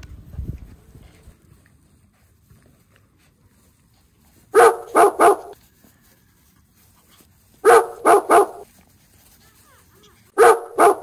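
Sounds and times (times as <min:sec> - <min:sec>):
dog barking: 0:04.5 - 0:05.6, 0:07.6 - 0:08.6, 0:10.4 - 0:11.0.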